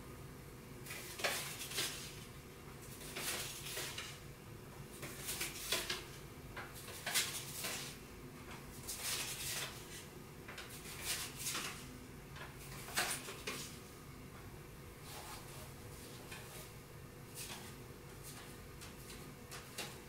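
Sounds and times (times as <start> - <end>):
faint room hum: 0.0 - 20.0.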